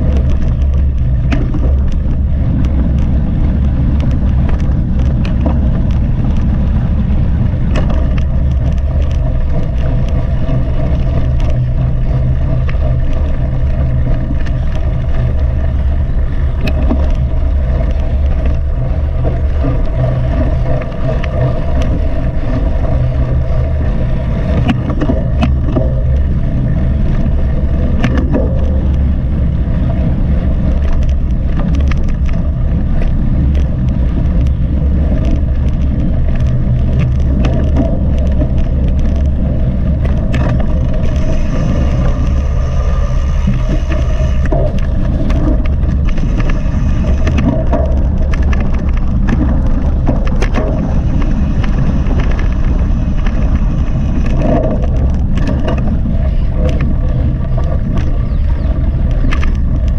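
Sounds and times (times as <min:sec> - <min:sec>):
bike rattling over bumps: 0:00.0 - 0:59.9
wind and riding noise: 0:00.0 - 0:59.9.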